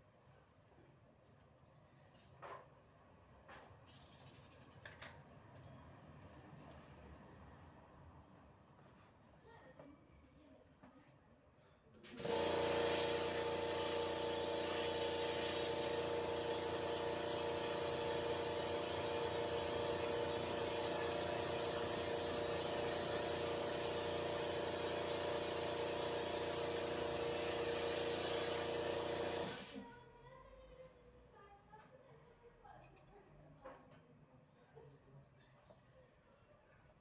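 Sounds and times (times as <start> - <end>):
air compressor running: 12.0 - 29.9.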